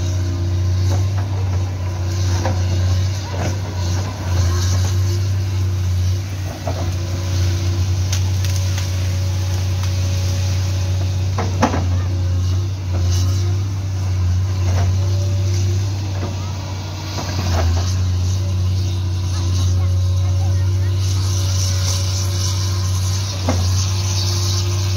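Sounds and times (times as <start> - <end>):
excavator diesel engine droning: 0.0 - 24.9.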